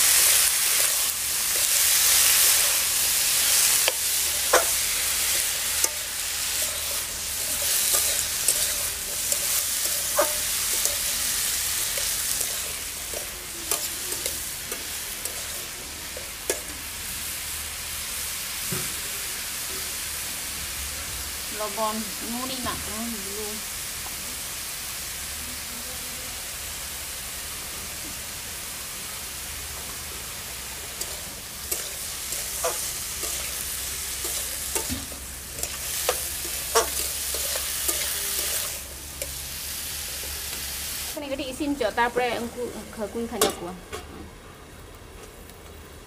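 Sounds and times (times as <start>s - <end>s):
metal spatula scraping wok: 0.0s - 16.9s, 30.8s - 41.0s
vegetables sizzling in oil: 0.0s - 46.0s.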